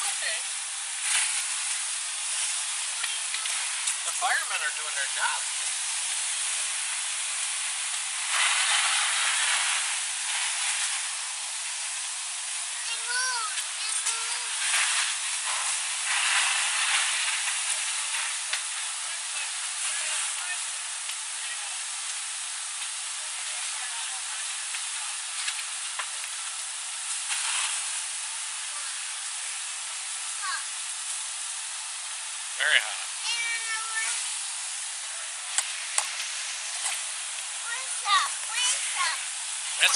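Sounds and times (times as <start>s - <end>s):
fire hose spraying water: 0.0s - 39.9s.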